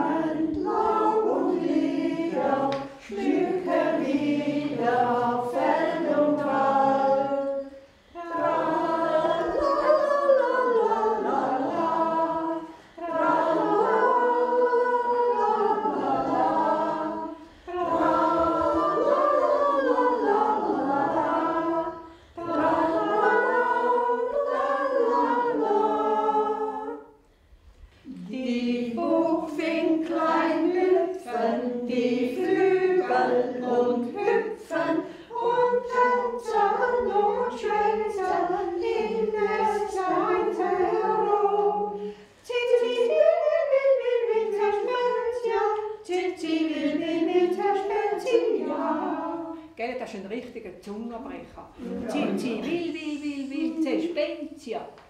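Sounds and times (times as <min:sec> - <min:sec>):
women singing in unison: 0:00.0 - 0:27.2, 0:27.8 - 0:50.2, 0:51.3 - 0:55.0.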